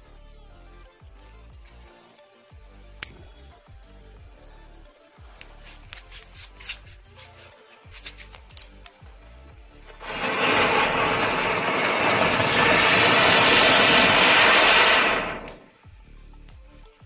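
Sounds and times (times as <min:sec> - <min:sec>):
firework rushing hiss: 0:09.9 - 0:15.7.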